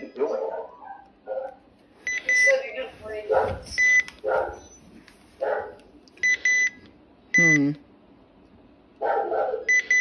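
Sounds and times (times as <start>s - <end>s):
radio key-press beeps: 2.1s - 2.7s, 3.8s - 4.1s, 6.2s - 6.8s, 9.7s - 10.0s.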